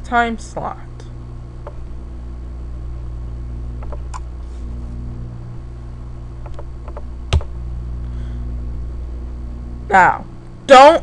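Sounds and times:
low electrical hum: 0.0s - 11.0s
computer mouse clicking: 3.8s - 4.3s, 6.4s - 7.5s.

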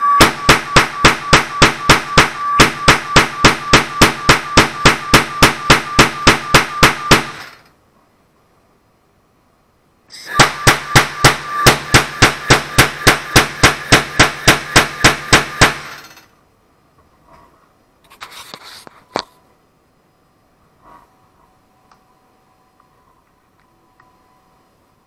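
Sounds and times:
continuous hiss: 0.0s - 25.0s
noise cannon bangs: 0.1s - 7.6s, 10.3s - 16.0s.

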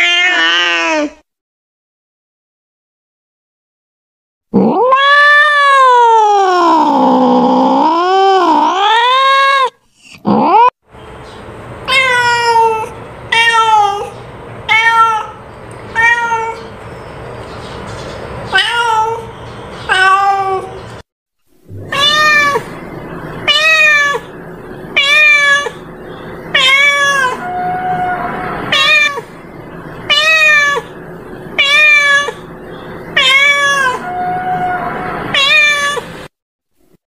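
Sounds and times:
cat meowing: 0.0s - 1.2s, 4.6s - 9.7s, 11.9s - 16.7s, 18.5s - 19.3s, 19.9s - 20.8s, 21.7s - 22.8s, 23.4s - 25.8s, 26.5s - 29.3s, 30.1s - 30.9s, 31.6s - 32.5s, 33.1s - 36.1s.

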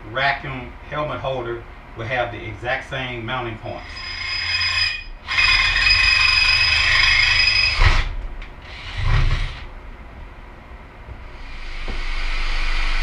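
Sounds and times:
low rumbling drill burst: 3.6s - 10.6s, 11.2s - 13.0s
cordless drill whining: 3.8s - 9.7s, 11.4s - 13.0s.

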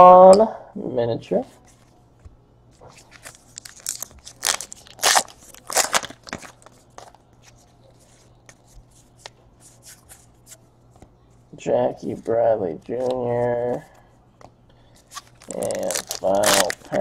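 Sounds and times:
crinkling: 2.8s - 10.3s, 14.9s - 17.0s
cards being flipped through: 2.8s - 11.1s, 15.0s - 17.0s.

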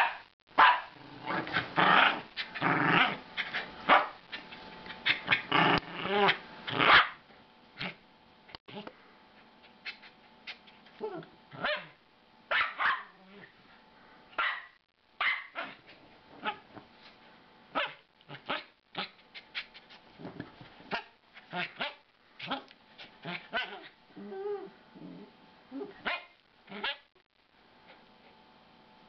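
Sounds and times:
puppy growling: 1.0s - 3.7s, 4.3s - 7.0s, 21.4s - 26.0s
puppy yapping: 11.6s - 13.1s.

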